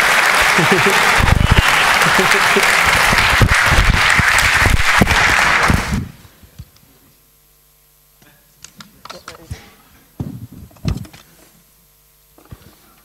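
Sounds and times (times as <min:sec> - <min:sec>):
audience applauding: 0:00.0 - 0:06.2.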